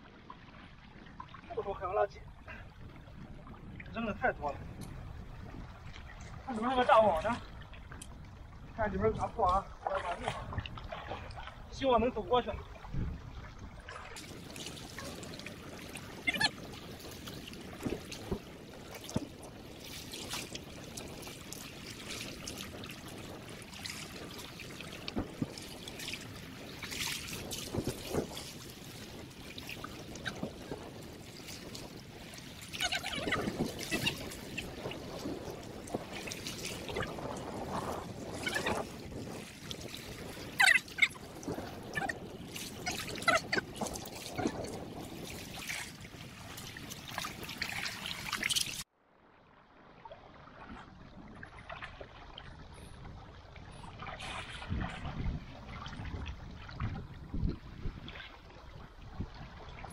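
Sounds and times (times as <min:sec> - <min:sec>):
water splashing from wading: 0:00.0 - 0:59.9.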